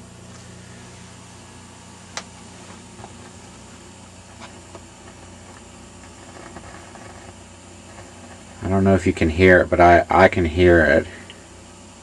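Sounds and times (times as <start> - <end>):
loudspeaker low hum: 0.0 - 11.6
sharp crackles and pops: 2.1 - 8.8.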